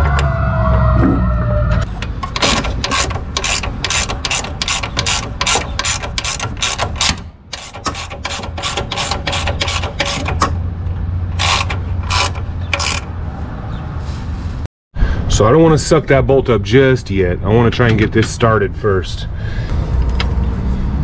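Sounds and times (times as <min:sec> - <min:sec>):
hand ratchet clicking: 0:02.1 - 0:10.5, 0:11.4 - 0:13.1.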